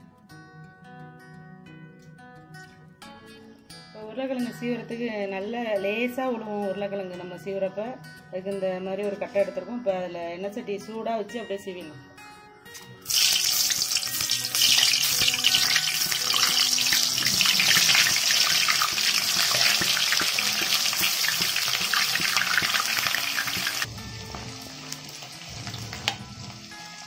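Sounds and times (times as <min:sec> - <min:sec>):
potato slices sizzling in oil: 0:13.0 - 0:27.0.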